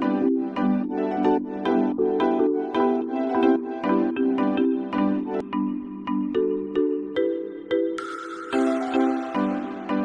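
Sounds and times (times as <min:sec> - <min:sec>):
light background melody: 0:00.0 - 0:10.0.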